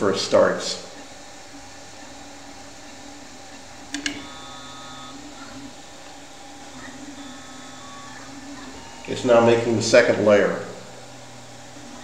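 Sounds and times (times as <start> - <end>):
fans and motors humming: 0.0 - 12.0
print head motor whine: 0.0 - 12.0
sharp clicks: 3.9 - 4.3.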